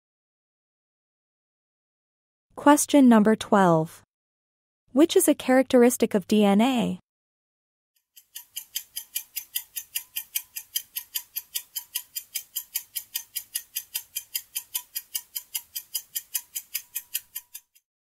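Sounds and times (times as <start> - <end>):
ticking countdown timer: 8.1 - 17.8.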